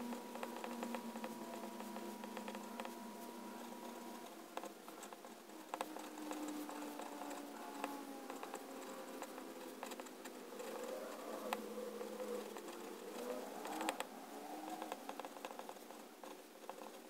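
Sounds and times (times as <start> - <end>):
fountain pen nib scratching paper: 0.3 - 11.6, 12.3 - 17.0.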